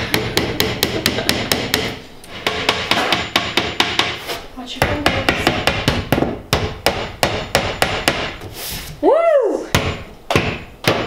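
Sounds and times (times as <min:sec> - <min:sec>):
hammer tapping nails into board: 0:00.1 - 0:04.2, 0:04.8 - 0:08.4.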